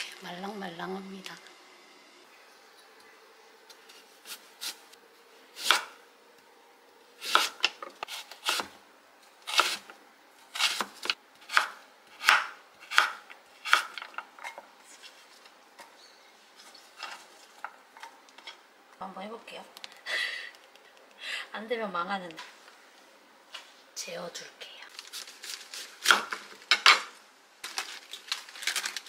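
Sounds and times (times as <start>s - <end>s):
knife chopping on wooden board: 7.3s - 7.7s, 8.4s - 8.7s, 10.6s - 14.0s.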